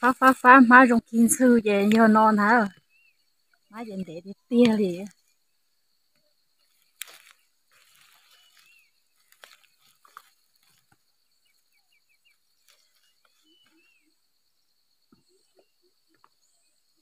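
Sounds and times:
leaves rustling: 6.6s - 14.0s
plant stalks snapping: 6.8s - 10.8s.

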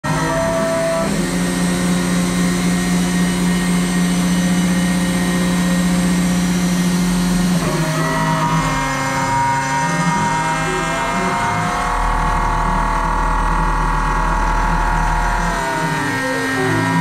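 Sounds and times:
machine motor humming and whining: 0.0s - 17.0s.

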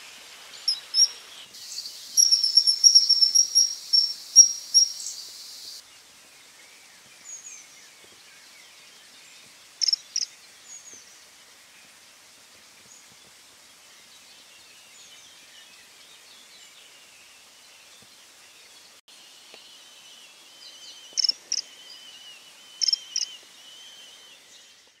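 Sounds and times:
faint background birdsong: 0.0s - 25.0s
kingfisher high-pitched calls: 2.1s - 5.2s.

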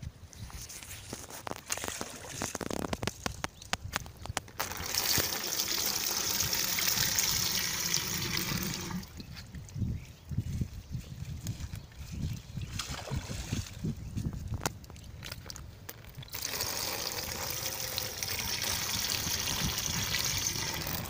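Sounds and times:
water splashing onto water: 12.7s - 13.9s.

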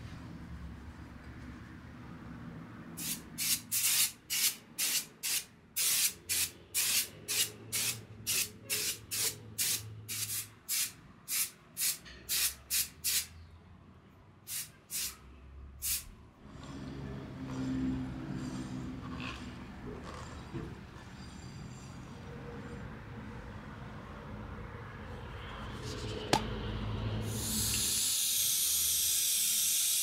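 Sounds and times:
aerosol spray hissing: 3.0s - 13.3s, 14.5s - 15.2s, 15.8s - 16.0s, 27.3s - 30.0s.

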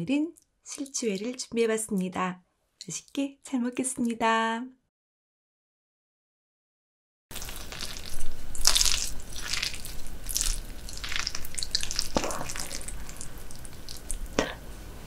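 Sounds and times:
chopsticks squelching raw fish: 7.3s - 14.4s.

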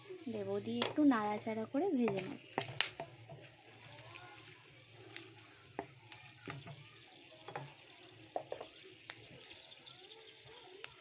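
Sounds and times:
wooden spatula scraping a pan: 0.0s - 9.9s
spices sizzling in oil: 0.0s - 11.0s.

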